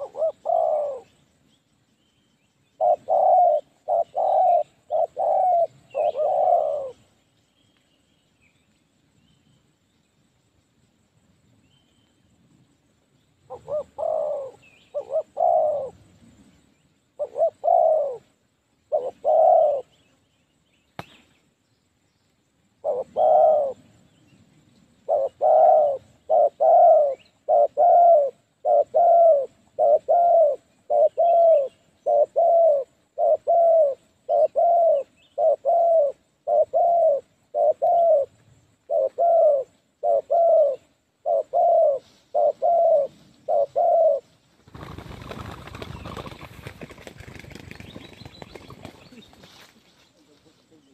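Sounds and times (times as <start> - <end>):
dove cooing: 0.0 - 1.2, 2.8 - 7.1, 13.5 - 16.1, 17.2 - 20.0, 22.8 - 24.0, 25.0 - 49.4.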